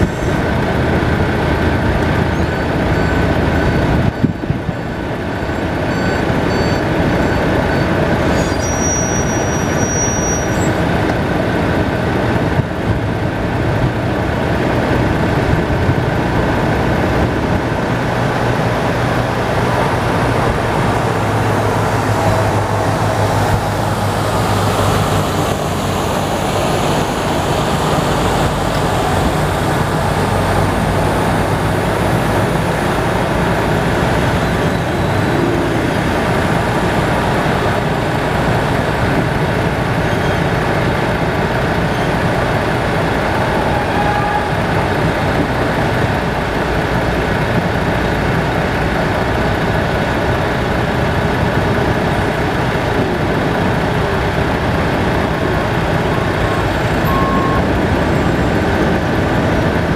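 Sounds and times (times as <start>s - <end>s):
diesel trucks and forklift working: 0.0s - 59.9s
semi truck passing: 0.0s - 59.9s
high beeps: 56.5s - 58.4s.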